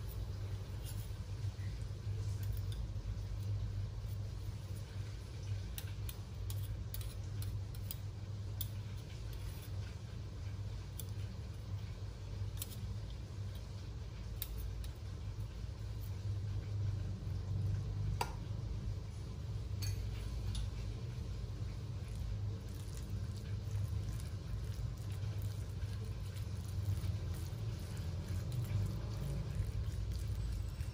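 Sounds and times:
steady low hum: 0:00.0 - 0:30.9
kitchenware clicks and taps: 0:19.8 - 0:20.7.

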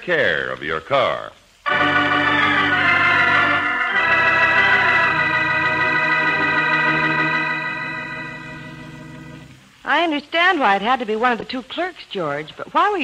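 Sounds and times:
organ chords: 0:01.6 - 0:09.8.

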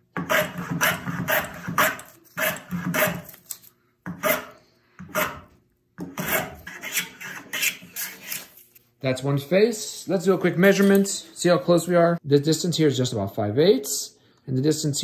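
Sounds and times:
hand plane shaving wood: 0:00.2 - 0:03.4, 0:05.1 - 0:08.5.

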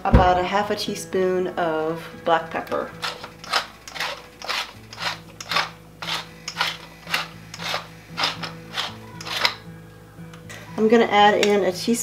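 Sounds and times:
pepper mill grinding: 0:02.7 - 0:09.7.

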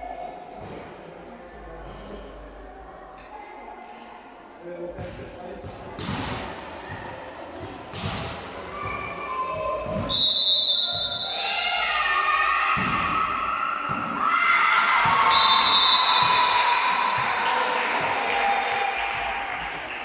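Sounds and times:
volleyball thumps in a hall: 0:00.0 - 0:20.0
referee's whistle: 0:10.0 - 0:11.5, 0:15.2 - 0:16.9
girls shouting: 0:11.3 - 0:15.5.

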